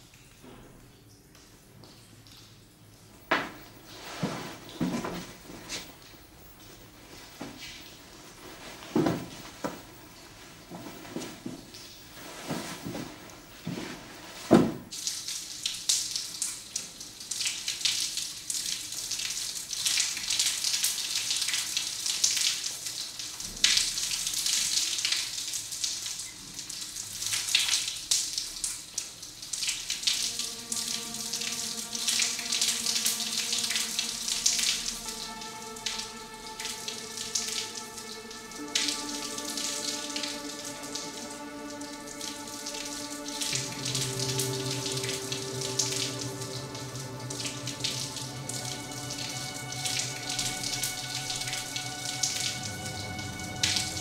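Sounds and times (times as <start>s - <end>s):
soft sustained music: 3.4s - 14.5s, 29.4s - 54.0s
shower spray hissing: 3.4s - 16.3s, 29.5s - 54.0s
thump: 14.5s - 14.9s.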